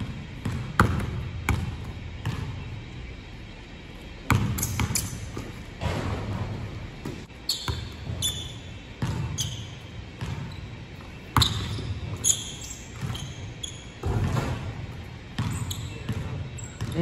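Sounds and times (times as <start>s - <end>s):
basketballs bouncing on hardwood: 0.0s - 2.7s, 4.3s - 10.7s, 14.0s - 17.0s
sneaker squeaks: 0.0s - 17.0s.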